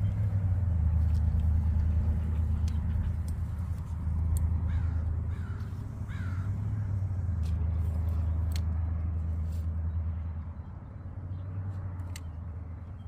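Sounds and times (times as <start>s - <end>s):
steady low rumble: 0.0s - 13.0s
sharp clicks: 2.6s - 4.6s
crow cawing: 4.7s - 7.0s.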